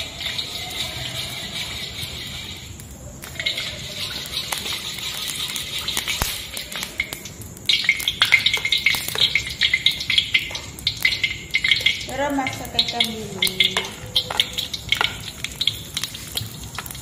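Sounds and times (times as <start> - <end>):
metal spatula scraping pan: 0.0 - 6.8
oil sizzling in wok: 0.0 - 17.0.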